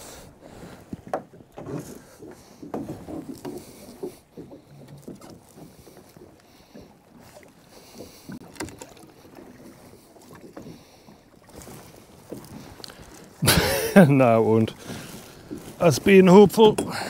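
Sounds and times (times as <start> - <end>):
water slapping against boat: 0.0 - 17.0.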